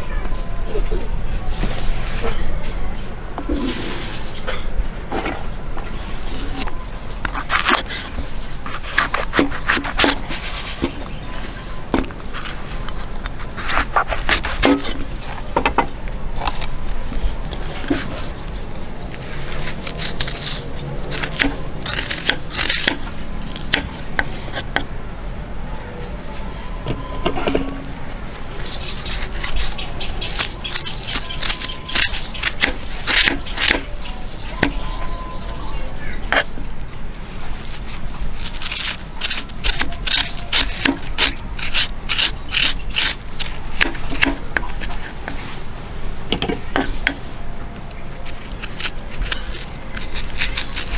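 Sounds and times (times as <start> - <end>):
metal spoon scraping gourd: 6.0 - 15.5, 17.5 - 24.8, 26.6 - 36.6, 37.3 - 45.6, 47.9 - 50.9.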